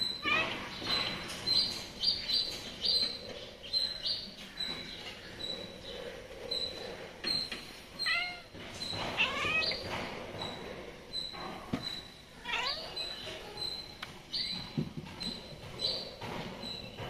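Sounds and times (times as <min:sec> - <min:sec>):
cats meowing: 0:00.0 - 0:00.7, 0:07.9 - 0:10.0, 0:12.3 - 0:13.5.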